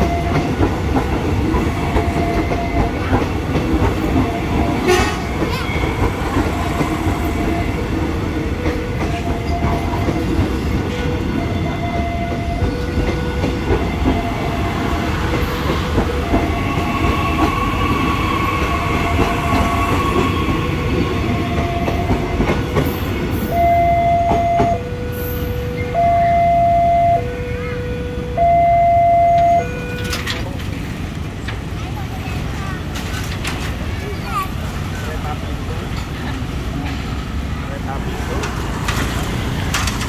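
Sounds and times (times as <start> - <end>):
level crossing alarm two-tone: 0.0 - 0.6, 1.9 - 3.0, 8.6 - 10.2, 11.1 - 15.2, 21.4 - 22.5, 23.4 - 30.3
electric train rumbling past: 0.0 - 40.0
wheels clattering over rails: 29.9 - 40.0.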